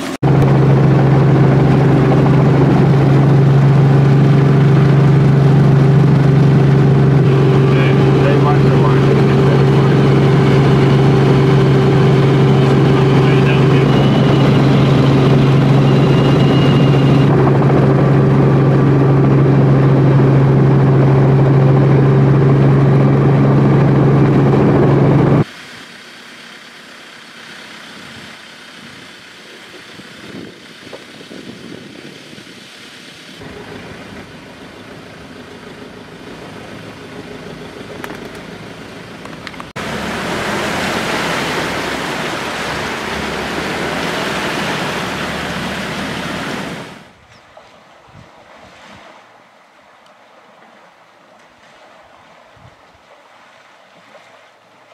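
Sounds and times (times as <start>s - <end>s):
helicopter engine and rotor drone: 0.0s - 39.8s
vehicle idling: 0.0s - 47.2s
vehicle engine and wind noise: 0.0s - 54.9s.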